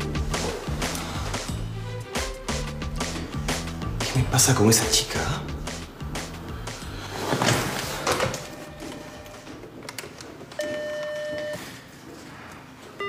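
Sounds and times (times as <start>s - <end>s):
rustling and handling noise: 7.0s - 13.0s
telephone ringing: 8.2s - 9.7s, 10.6s - 11.7s.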